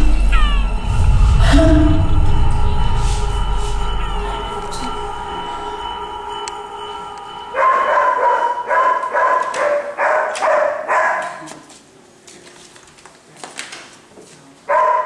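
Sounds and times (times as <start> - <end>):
dog barking: 7.6 - 11.7, 14.7 - 15.0.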